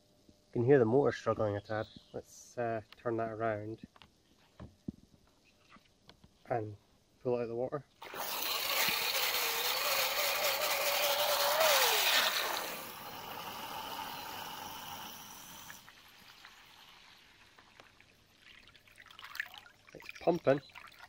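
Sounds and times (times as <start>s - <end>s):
hair dryer motor tone: 8.0s - 15.8s
water churning and splashing: 15.4s - 21.0s.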